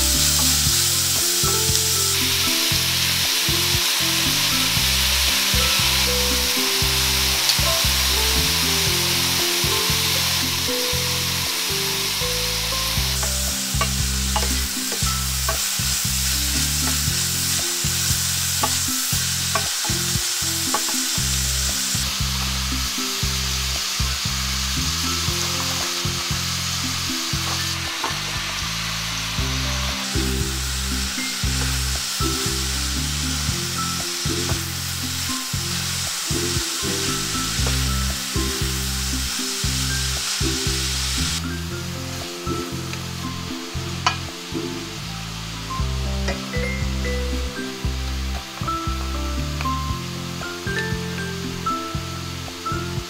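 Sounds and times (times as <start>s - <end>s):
vegetables sizzling in a pan: 0.0s - 53.0s
utensils clicking against pan: 12.7s - 23.3s.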